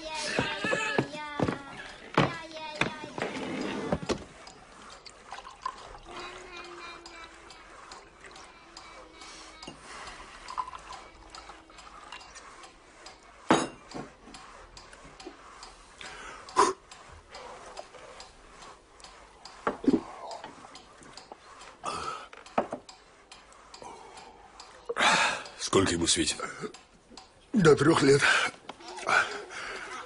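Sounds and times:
clock ticking: 0.0s - 30.0s
glasses and dishes clinking: 13.5s - 14.1s.

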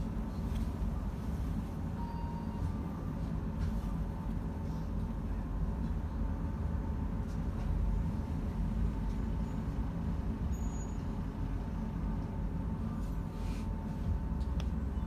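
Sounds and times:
faint steady whine: 0.0s - 15.0s
tram low rumble: 0.0s - 15.0s.

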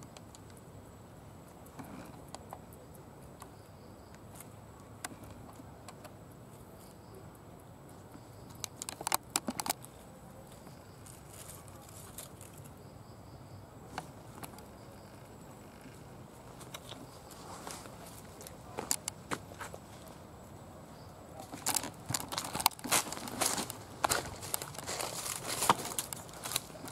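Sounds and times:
sharp crackles: 7.9s - 12.8s, 21.4s - 26.9s
clicks from dry leaf litter: 8.1s - 12.8s, 16.6s - 20.1s, 21.4s - 26.9s.

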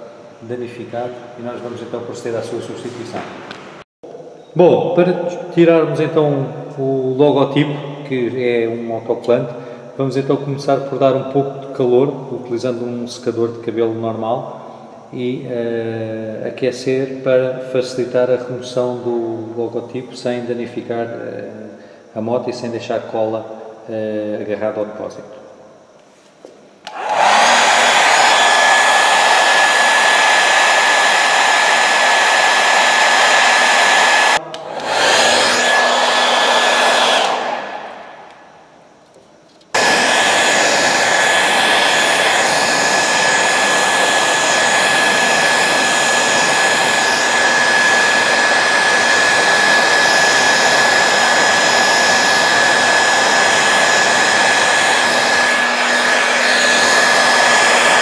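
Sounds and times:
hair dryer blowing: 26.8s - 38.5s, 39.7s - 58.0s.

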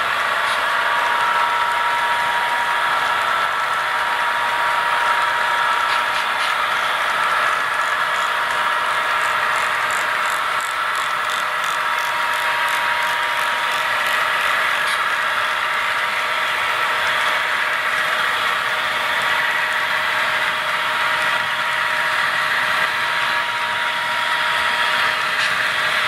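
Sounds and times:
model train rolling: 0.2s - 20.4s.

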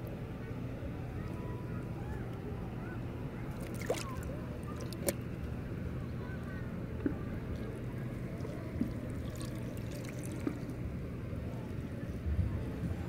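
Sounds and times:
wind: 0.0s - 13.0s
shallow seawater: 0.2s - 13.0s.

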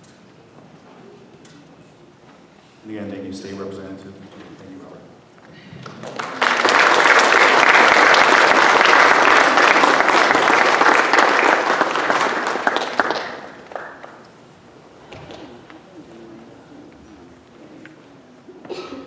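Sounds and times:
audience applauding: 5.8s - 14.4s.

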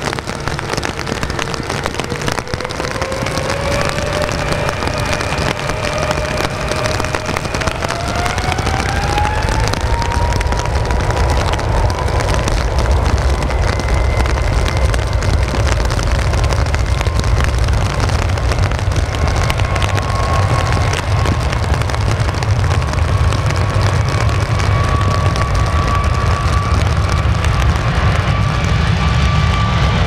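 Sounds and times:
jet engines roaring at takeoff: 0.0s - 30.0s.

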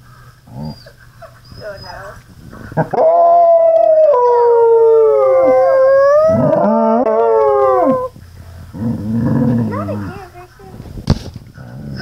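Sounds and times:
dog howling: 2.8s - 8.1s.

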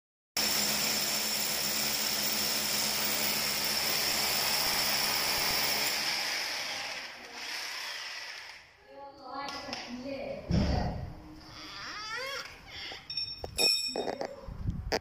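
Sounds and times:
hammer drill boring into wall: 0.4s - 8.6s.

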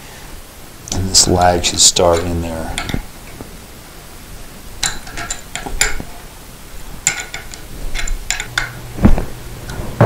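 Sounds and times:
metal wrenches clinking: 4.8s - 6.1s, 7.0s - 8.8s.

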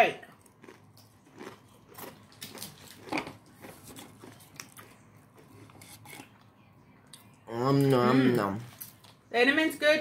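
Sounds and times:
chewing crunchy candy: 0.2s - 6.4s.

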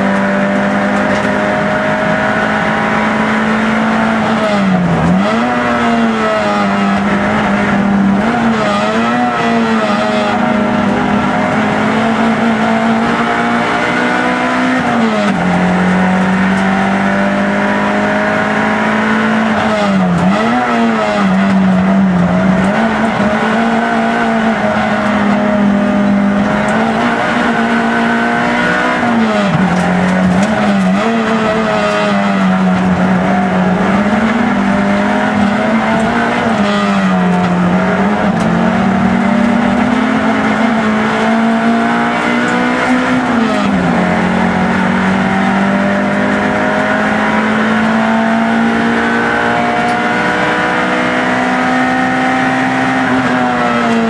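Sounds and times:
race car engine at high revs: 0.0s - 54.0s.

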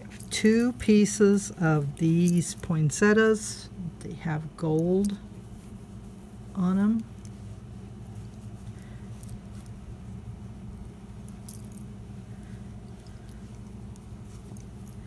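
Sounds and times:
steady low hum: 0.0s - 15.0s
fabric rustling: 4.6s - 15.0s.

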